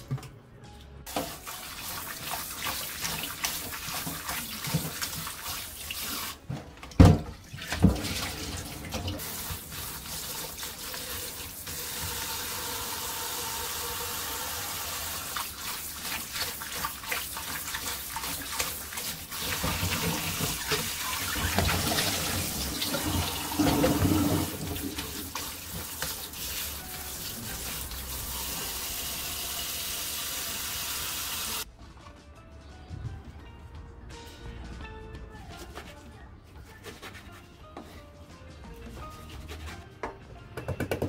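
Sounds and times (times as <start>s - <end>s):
tap water running into sink: 1.1s - 31.6s.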